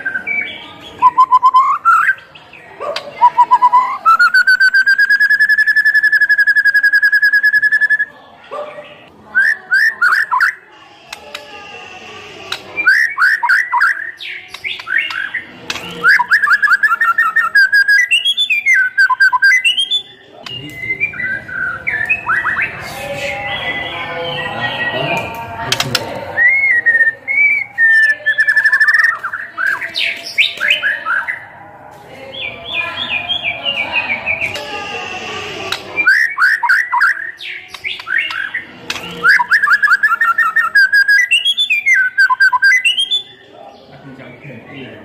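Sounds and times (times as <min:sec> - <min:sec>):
songbird singing varied whistles: 0:00.0 - 0:02.3, 0:03.2 - 0:08.2, 0:09.3 - 0:10.7, 0:12.8 - 0:25.3, 0:26.4 - 0:31.4, 0:36.0 - 0:43.5.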